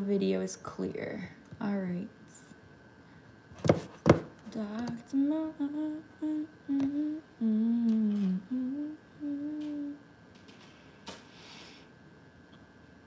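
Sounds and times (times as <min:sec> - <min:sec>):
woman humming a tune: 0:04.5 - 0:10.1.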